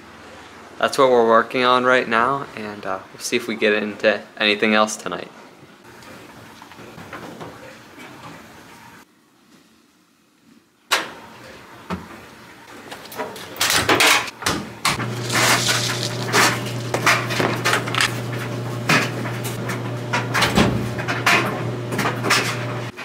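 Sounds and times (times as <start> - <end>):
low washer hum: 14.4 - 23.0.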